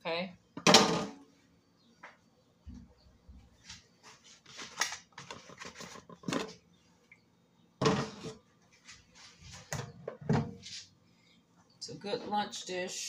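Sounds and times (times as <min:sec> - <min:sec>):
kitchenware clattering and scraping: 0:07.8 - 0:08.4.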